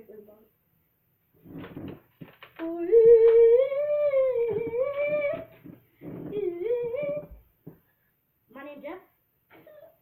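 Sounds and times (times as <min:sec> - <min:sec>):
boy singing drawn-out notes: 0:02.6 - 0:05.5, 0:06.2 - 0:07.4.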